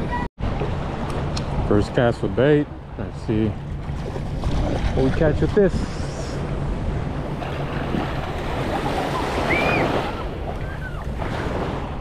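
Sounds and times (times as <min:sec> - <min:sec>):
wind buffeting microphone: 0:02.6 - 0:12.0
small waves washing on shore: 0:03.3 - 0:12.0.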